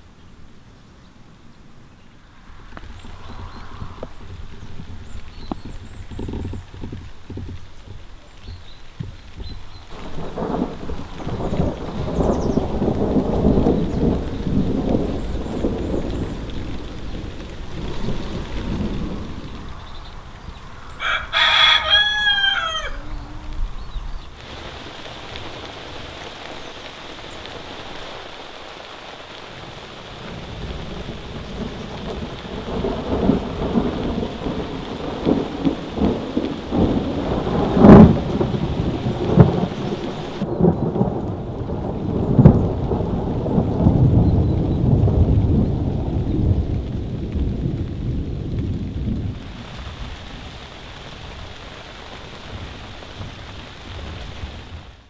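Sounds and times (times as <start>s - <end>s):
steady rain: 0.0s - 55.0s
thunder rumbling: 1.7s - 55.0s
rooster crowing: 20.8s - 23.8s.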